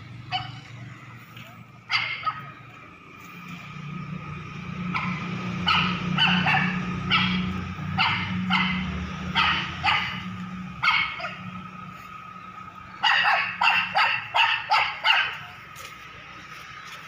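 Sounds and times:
puppy yelping: 5.0s - 10.2s.

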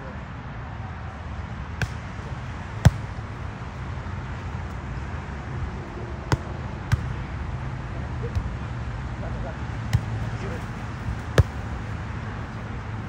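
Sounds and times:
volleyball smacks: 2.8s - 3.2s, 9.9s - 10.2s, 11.2s - 11.8s.

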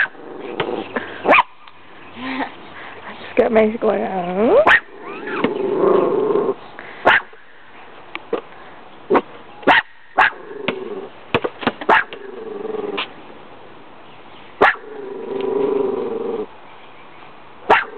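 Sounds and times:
dogs barking: 0.0s - 0.2s, 0.8s - 1.6s, 4.5s - 5.5s, 7.0s - 7.4s, 9.1s - 10.5s, 11.9s - 12.3s, 14.6s - 15.0s, 17.7s - 17.9s.

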